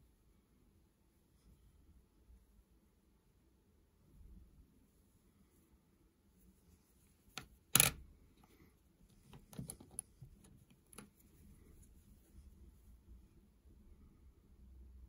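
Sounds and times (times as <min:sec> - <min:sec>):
sharp clicks and taps: 0:07.3 - 0:08.0.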